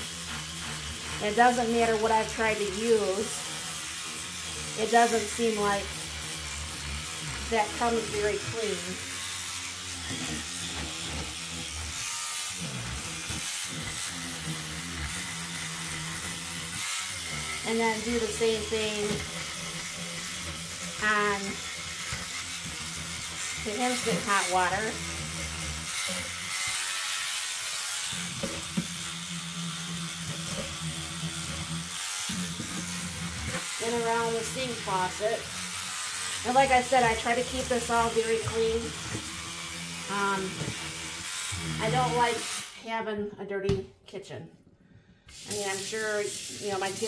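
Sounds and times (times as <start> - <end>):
battery scrubbing brush buzzing: 0.0 - 42.8, 45.3 - 47.0
bristles and water hissing: 45.3 - 47.0.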